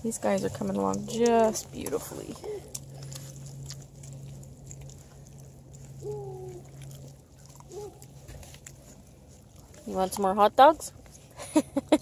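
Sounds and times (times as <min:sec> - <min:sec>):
low steady drone: 0:00.0 - 0:12.0
wet chewing clicks: 0:00.0 - 0:12.0
puppy whining: 0:05.8 - 0:08.7.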